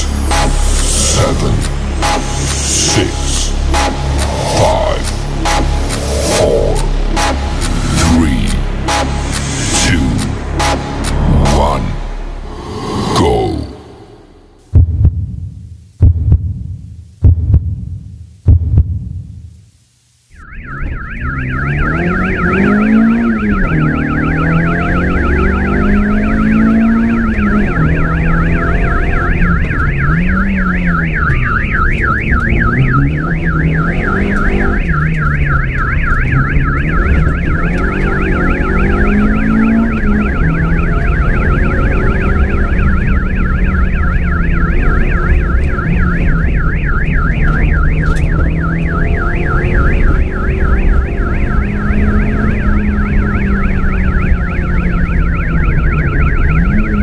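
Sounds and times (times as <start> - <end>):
rapid siren-like warble: 0.0 - 14.7, 20.3 - 57.0
low note rising and falling: 0.0 - 15.3
low rumble: 0.0 - 19.2.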